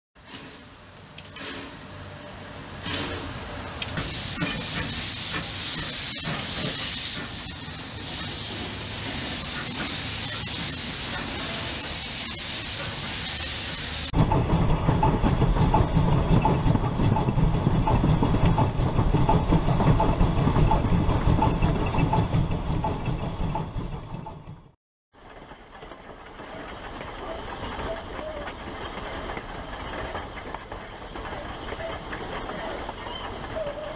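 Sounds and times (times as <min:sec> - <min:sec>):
steam hissing: 0:00.2 - 0:23.0
moving steam train chugging: 0:00.2 - 0:33.9.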